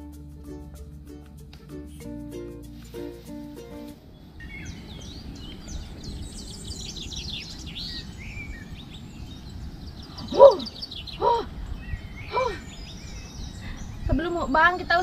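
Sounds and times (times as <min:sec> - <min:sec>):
music track: 0:00.0 - 0:04.0
outdoor hiss: 0:00.0 - 0:15.0
small birds chirping: 0:02.0 - 0:15.0.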